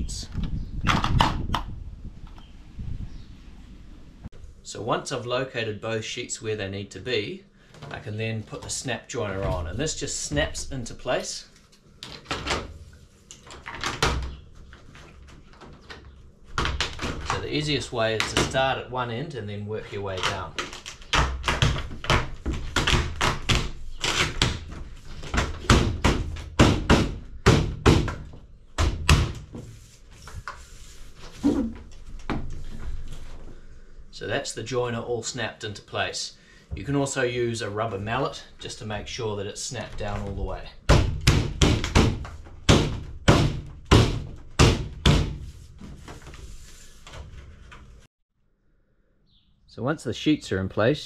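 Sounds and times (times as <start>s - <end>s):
sharp thuds on plastic roofing: 20.2s - 29.6s, 40.0s - 46.1s.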